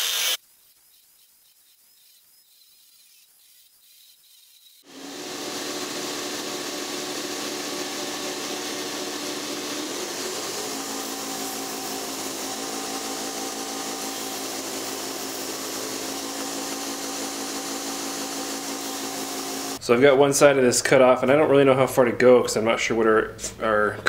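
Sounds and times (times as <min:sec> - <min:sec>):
belt grinder grinding steel: 0:00.0 - 0:00.4, 0:03.5 - 0:19.8
motor hum: 0:04.9 - 0:19.8.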